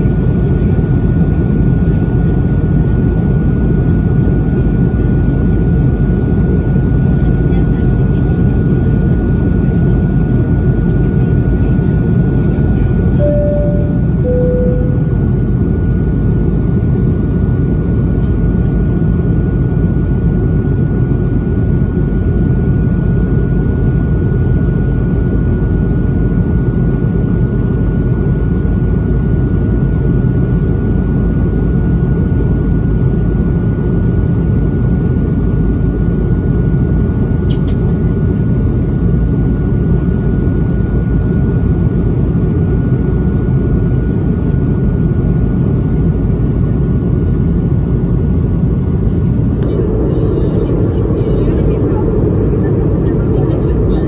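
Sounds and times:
airplane cabin engine rumble: 0:00.0 - 0:54.0
thin steady whine: 0:13.0 - 0:16.1, 0:47.0 - 0:54.0
two-note falling chime: 0:13.2 - 0:15.2.

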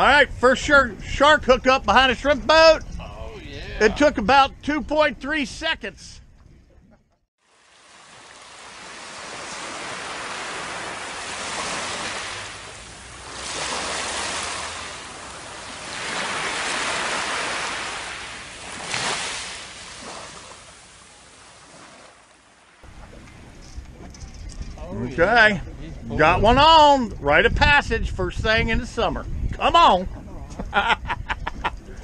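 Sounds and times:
small waves washing over sand: 0:07.4 - 0:23.1.

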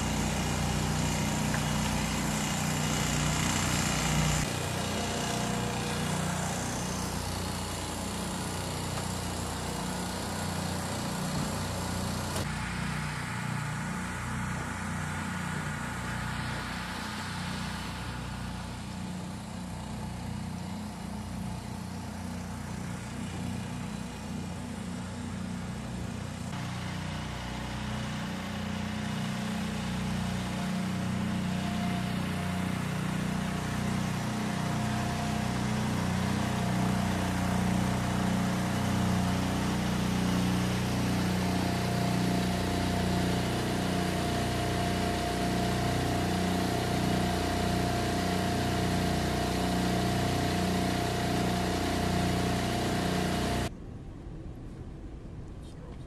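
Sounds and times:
low engine drone: 0:00.0 - 0:56.0
steady whine: 0:30.0 - 0:56.0.

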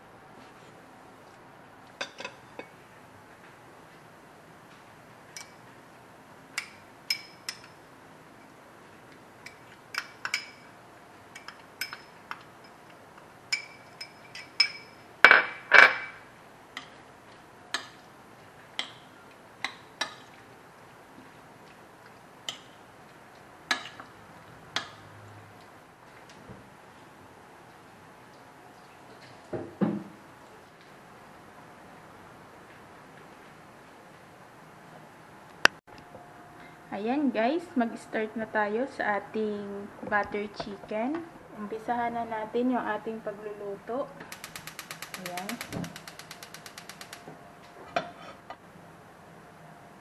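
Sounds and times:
utensils clinking on ceramic plate: 0:11.3 - 0:16.2.

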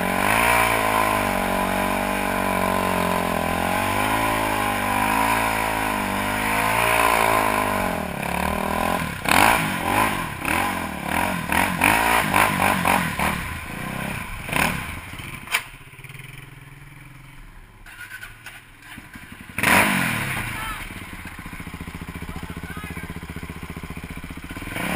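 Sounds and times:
atv engine revving: 0:00.0 - 0:24.9
sharp click: 0:15.4 - 0:15.8.

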